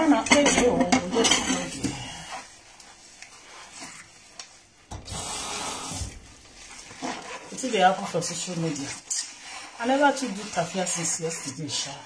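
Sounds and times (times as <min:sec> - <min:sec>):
dishes and cutlery clattering in sink: 0:00.0 - 0:02.1.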